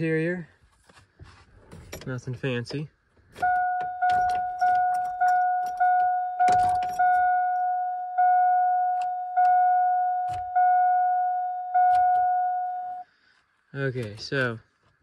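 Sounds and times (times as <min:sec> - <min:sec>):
dashboard warning chime dinging: 0:03.4 - 0:13.1.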